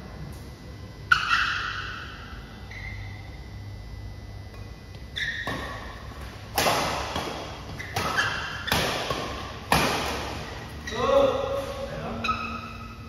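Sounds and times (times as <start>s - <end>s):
rackets hitting shuttlecock: 4.5s - 10.8s
shoe squeaks on court floor: 5.2s - 6.0s, 7.7s - 8.9s, 10.7s - 13.0s.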